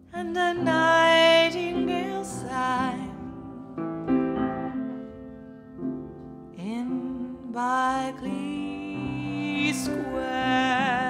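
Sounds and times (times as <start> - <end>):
woman singing: 0.0 - 3.7, 6.6 - 11.0
piano chords: 0.0 - 11.0.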